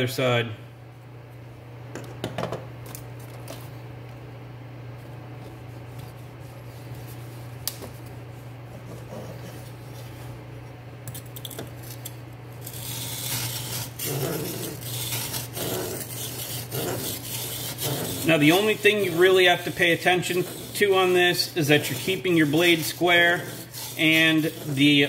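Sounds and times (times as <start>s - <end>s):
steady low hum: 0.0s - 25.0s
blade scraping on whetstone: 12.6s - 25.0s.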